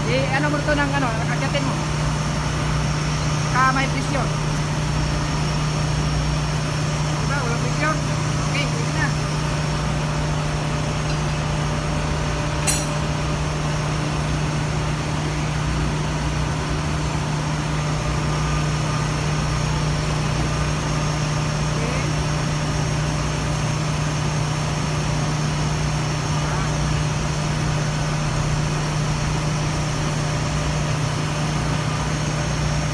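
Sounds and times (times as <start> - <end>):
engine-room machinery humming: 0.0 - 32.9
sharp metallic clank: 12.6 - 13.0.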